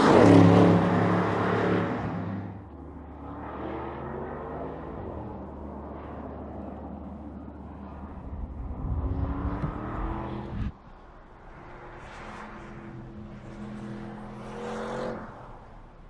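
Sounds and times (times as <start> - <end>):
car engine accelerating hard: 8.1 - 10.8.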